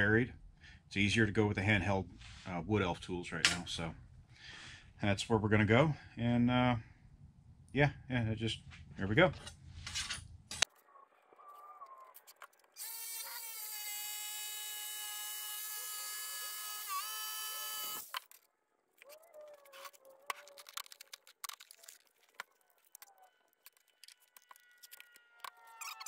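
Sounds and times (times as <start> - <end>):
jigsaw cutting board: 12.8 - 18.3.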